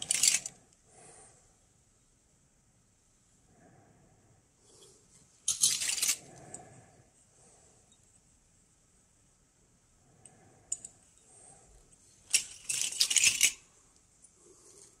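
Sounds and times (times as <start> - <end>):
metal tubes clinking in a pile: 0.0 - 0.6, 5.5 - 6.3, 12.2 - 13.6.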